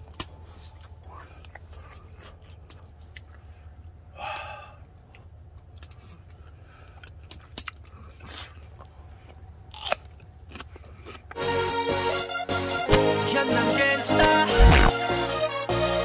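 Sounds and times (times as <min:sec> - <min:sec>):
man chewing with mouth smacks: 0:00.0 - 0:04.1, 0:04.8 - 0:11.4
low steady hum: 0:00.0 - 0:11.4.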